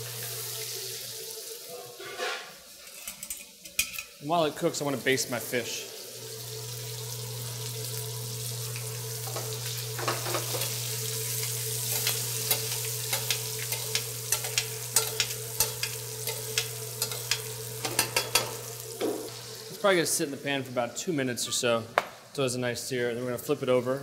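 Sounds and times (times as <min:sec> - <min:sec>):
fish sizzling in a pan: 0:00.0 - 0:20.3
metal spoon clicking: 0:11.9 - 0:18.5.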